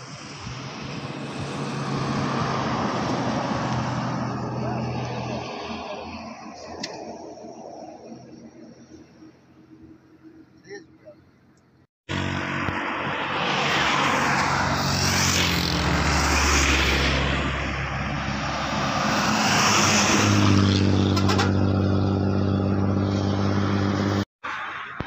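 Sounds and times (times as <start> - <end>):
bus diesel engine hum: 0.0 - 13.1
passing traffic: 0.0 - 25.0.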